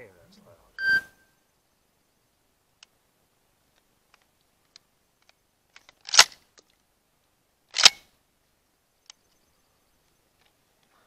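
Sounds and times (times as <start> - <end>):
faint clicks: 2.8 - 3.0, 3.7 - 6.9, 9.0 - 9.4.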